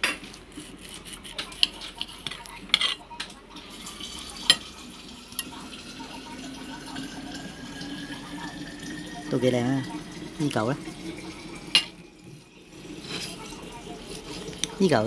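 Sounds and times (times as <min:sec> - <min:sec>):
knife and fork scraping plate: 0:00.0 - 0:03.1, 0:12.9 - 0:14.6.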